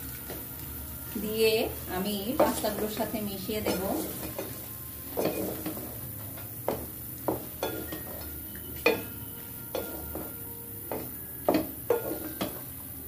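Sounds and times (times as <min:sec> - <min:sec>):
wooden spatula knocking metal pot: 0:02.3 - 0:03.0.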